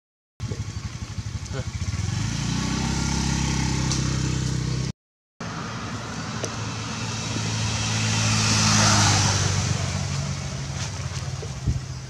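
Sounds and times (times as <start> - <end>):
vehicle engine idling: 0.4 - 2.3.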